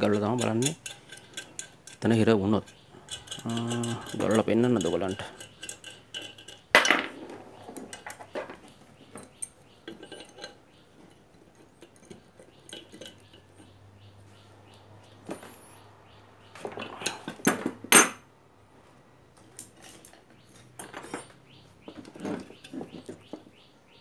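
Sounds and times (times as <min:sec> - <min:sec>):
small metal parts clinking: 0:00.0 - 0:13.8, 0:16.6 - 0:18.2, 0:19.5 - 0:23.5
knocks and rattles: 0:19.8 - 0:23.6.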